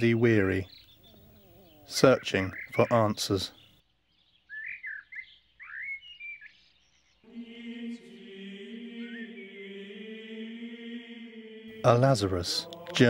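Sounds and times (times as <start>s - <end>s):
bird chirps: 0.0s - 7.3s, 8.7s - 10.0s
droning chant of held tones: 7.3s - 13.0s.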